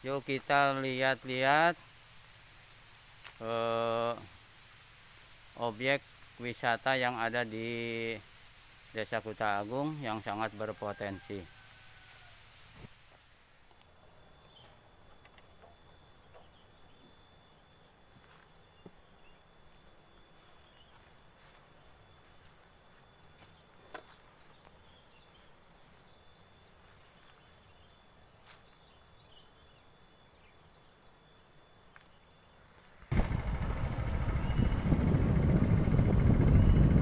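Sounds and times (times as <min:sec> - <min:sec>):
vehicle engine rumble: 0:33.1 - 0:37.0
wind on microphone: 0:33.1 - 0:37.0.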